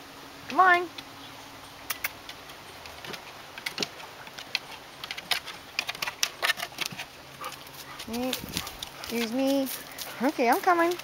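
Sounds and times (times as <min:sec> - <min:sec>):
dog claws clicking on wooden steps: 0:02.3 - 0:11.0.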